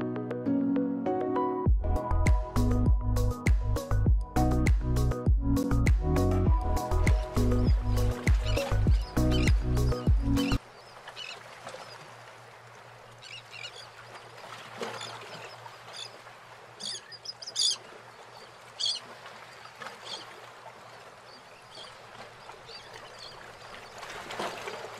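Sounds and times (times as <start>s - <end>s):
birds chirping: 6.8s - 12.1s, 13.1s - 20.4s, 21.0s - 24.1s.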